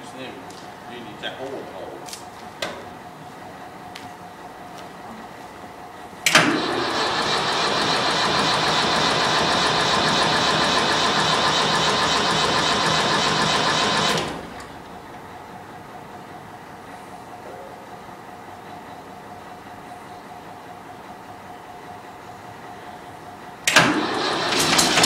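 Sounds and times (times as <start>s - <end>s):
diesel engine turning over: 6.2s - 15.7s, 23.6s - 25.0s.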